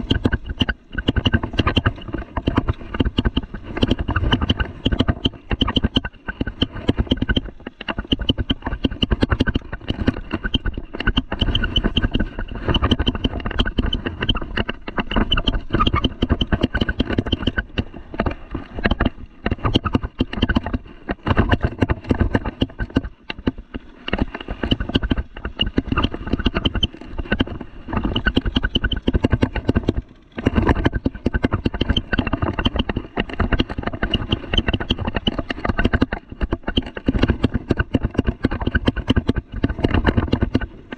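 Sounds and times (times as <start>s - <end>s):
bike rattling on rough trail: 0.0s - 40.9s
wind rumble on microphone: 0.0s - 40.9s.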